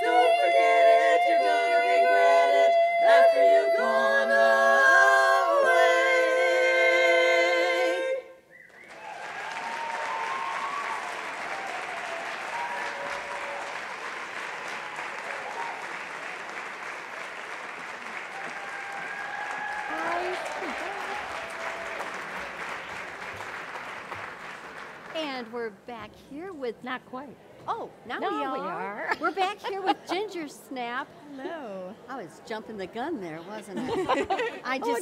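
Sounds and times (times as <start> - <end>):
women singing a cappella chords: 0.0 - 8.4
audience applauding: 8.6 - 25.2.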